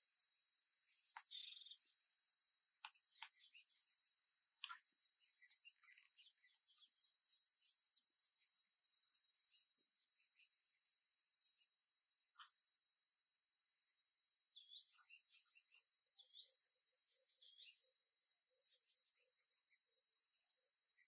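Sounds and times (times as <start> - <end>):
bird chirps: 0.0 - 13.3, 14.0 - 21.0
insect hiss: 0.0 - 21.0.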